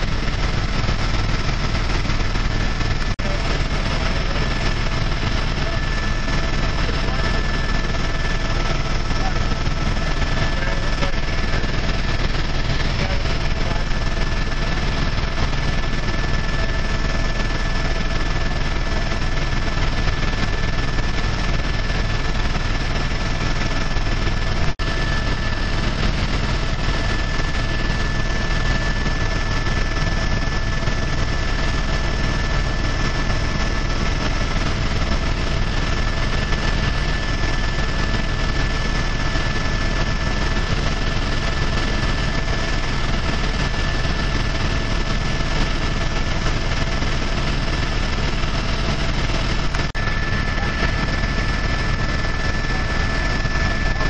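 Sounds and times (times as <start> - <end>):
aircraft engine drone: 0.0 - 54.0
high whine: 48.4 - 54.0.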